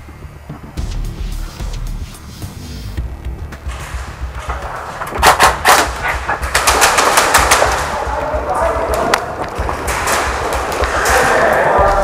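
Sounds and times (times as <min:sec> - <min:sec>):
airsoft gun shots: 0:05.2 - 0:08.0.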